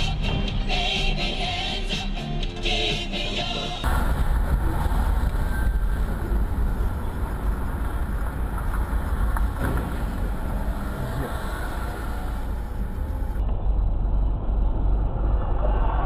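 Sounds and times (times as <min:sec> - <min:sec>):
tyres on wet road: 0:03.8 - 0:13.4
engine rumble: 0:03.8 - 0:16.0.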